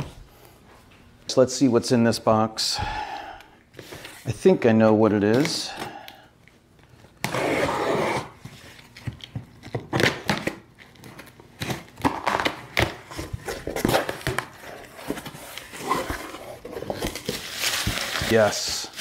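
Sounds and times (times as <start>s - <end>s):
tape and cardboard crinkling: 6.8s - 19.0s.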